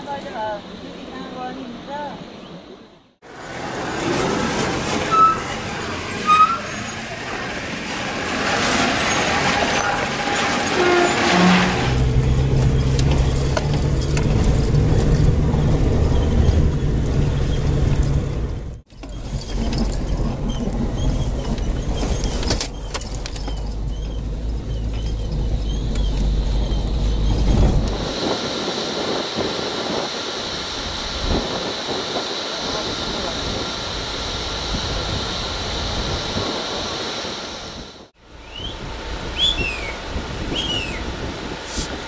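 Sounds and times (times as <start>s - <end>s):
road rumble: 0.0s - 42.0s
roadside noise: 0.0s - 42.0s
vehicle engine drone: 3.2s - 42.0s
bumps and rattles: 8.2s - 28.1s.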